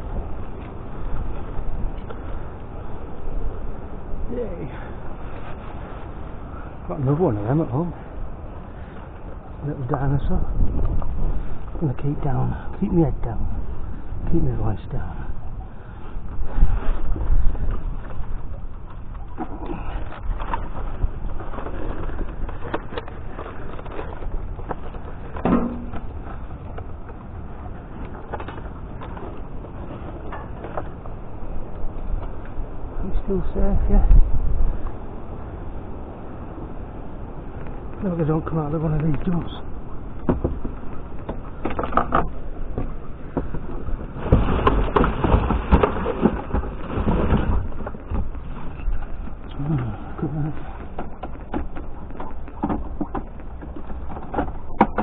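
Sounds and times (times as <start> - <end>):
steady low rumble: 0.0 - 54.8
rustles and knocks of boxes: 40.2 - 49.3.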